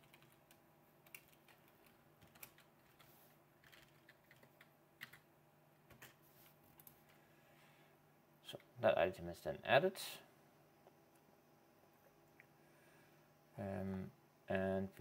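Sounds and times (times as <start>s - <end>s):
keyboard keystrokes: 3.6s - 5.2s.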